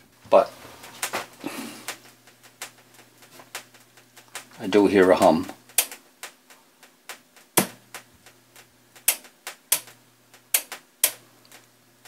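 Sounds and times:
faint low mains hum: 0.0s - 12.0s
knob clicks: 9.0s - 9.9s.

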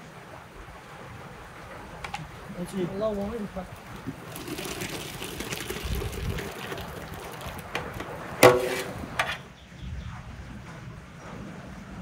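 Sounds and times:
cherries and syrup splashing: 2.2s - 9.2s
metal clang: 8.4s - 9.5s.

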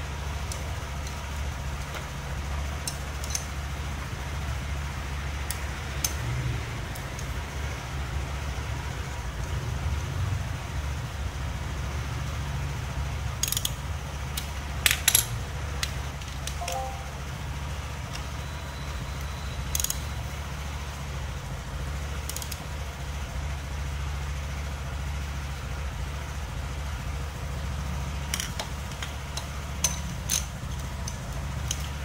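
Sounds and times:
low background hum: 0.0s - 32.0s
socket tool metallic clicks: 2.8s - 3.5s, 13.4s - 17.1s, 19.7s - 20.1s.

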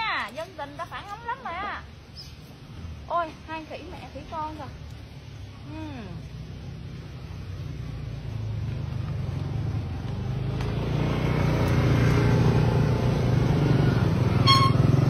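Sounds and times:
motorbike engine approaching: 5.4s - 15.0s.

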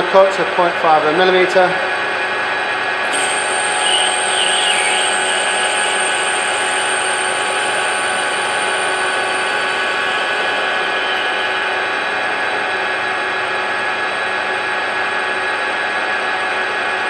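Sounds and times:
lathe humming and whining: 1.6s - 17.0s
high thin tone: 3.1s - 11.9s.

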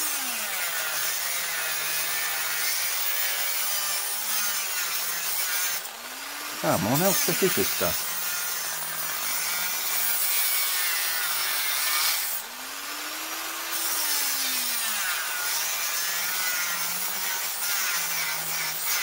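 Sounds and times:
rotary tool cutting steel: 0.0s - 19.0s.

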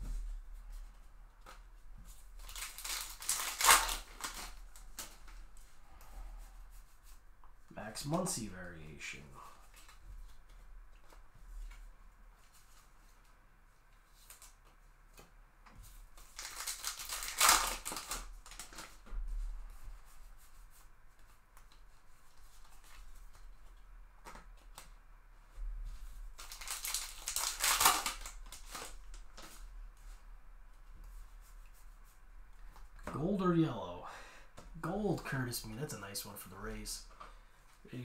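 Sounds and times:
cards rustling: 1.4s - 5.7s, 15.8s - 19.1s, 26.0s - 30.1s
card pack wrappers tearing: 2.4s - 5.1s, 16.2s - 18.9s, 26.4s - 29.5s.

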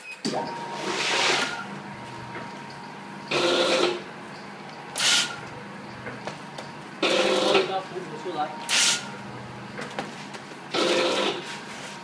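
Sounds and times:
packing machine humming: 0.0s - 12.0s
loud noisy machine bursts: 8.6s - 9.2s, 10.7s - 11.4s.

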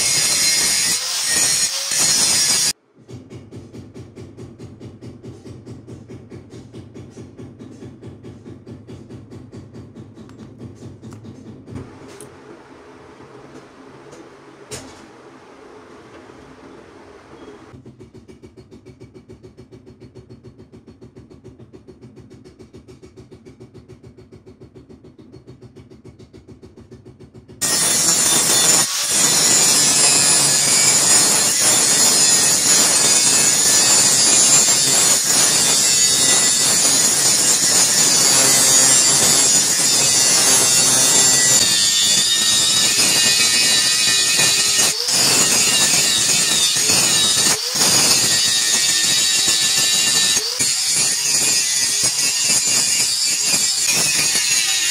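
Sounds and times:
power grinder grinding steel: 0.0s - 2.8s, 27.6s - 54.9s.

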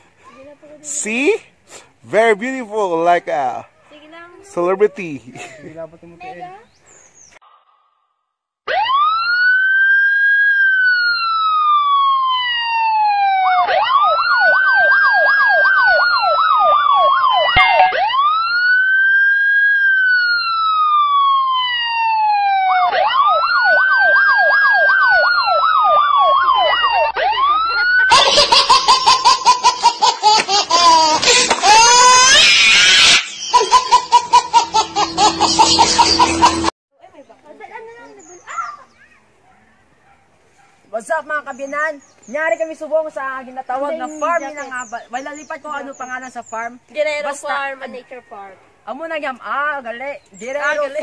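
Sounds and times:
siren wailing and yelping: 8.7s - 29.4s, 31.7s - 34.4s
baby laughing: 27.8s - 32.4s, 33.0s - 36.7s.

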